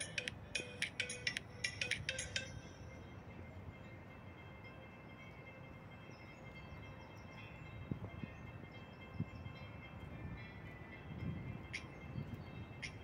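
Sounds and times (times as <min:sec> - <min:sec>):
wind buffeting microphone: 0:06.5 - 0:13.0.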